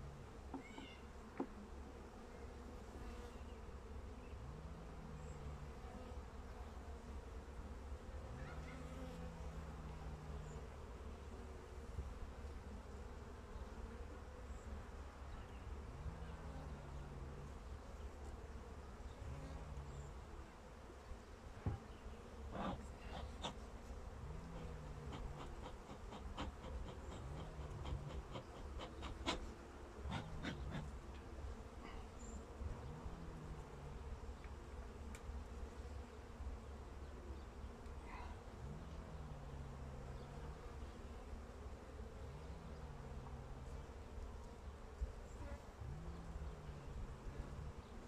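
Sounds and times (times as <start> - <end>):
honeybees buzzing: 0.0 - 48.0.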